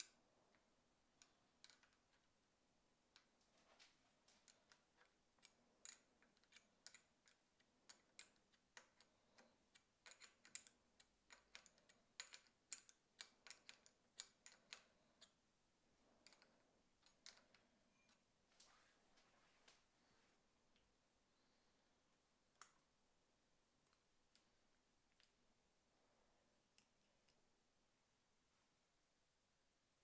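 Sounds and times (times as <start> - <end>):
wrench clicking on nut: 9.7 - 15.3.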